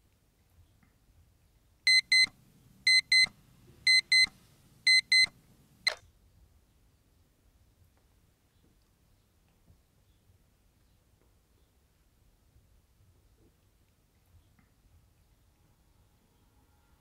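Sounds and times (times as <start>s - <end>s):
alarm clock double beep: 1.9s - 2.3s, 2.9s - 3.3s, 3.9s - 4.3s, 4.9s - 5.3s
alarm clock switch click: 1.9s - 2.3s, 2.9s - 3.3s, 3.9s - 4.3s, 4.9s - 5.3s.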